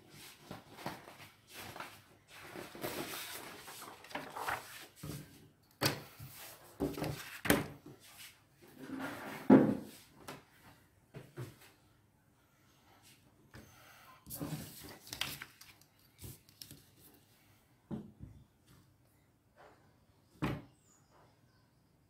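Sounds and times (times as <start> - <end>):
paper rustling: 0.4 - 5.2, 6.3 - 7.6, 14.3 - 17.2.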